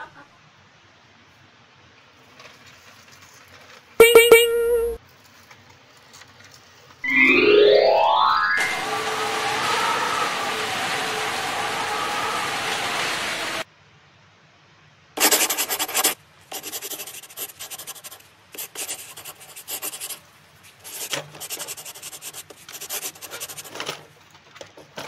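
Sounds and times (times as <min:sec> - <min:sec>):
background music: 0:07.1 - 0:09.3.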